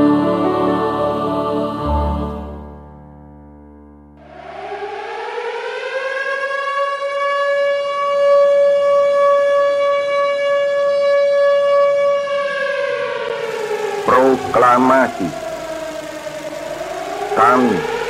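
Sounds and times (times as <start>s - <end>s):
siren wailing: 4.2s - 18.0s.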